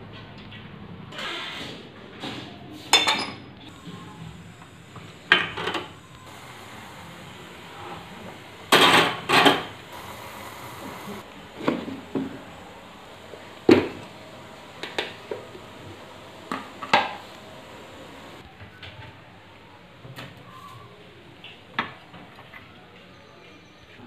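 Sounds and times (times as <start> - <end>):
kitchen items knocking and clattering: 8.7 - 9.8.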